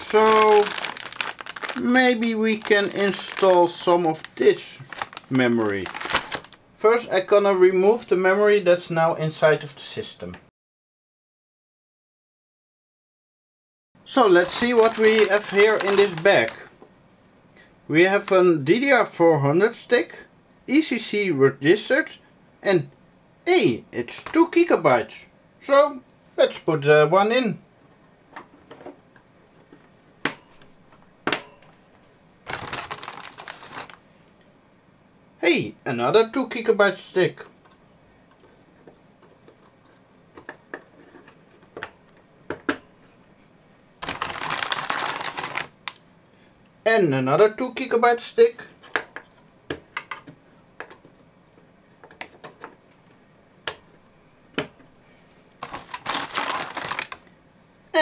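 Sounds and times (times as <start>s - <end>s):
plastic bag crinkling: 0.0s - 6.6s, 14.2s - 16.7s, 32.4s - 34.0s, 44.0s - 46.0s, 55.6s - 57.3s.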